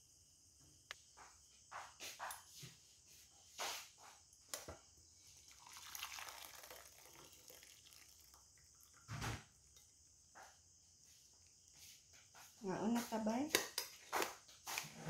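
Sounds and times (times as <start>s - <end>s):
liquid pouring into a bowl: 4.5s - 10.3s.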